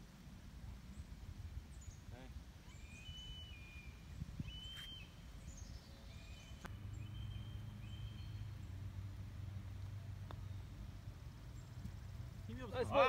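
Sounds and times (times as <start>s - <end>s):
low steady hum: 0.0s - 13.0s
birds whistling: 2.6s - 8.7s.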